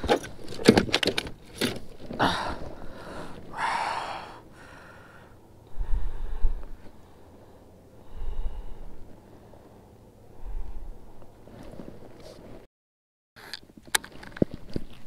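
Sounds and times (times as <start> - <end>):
fish handling clicks and knocks: 0.0 - 2.2
breathy rushes: 2.1 - 11.7
low rumble: 2.1 - 12.2.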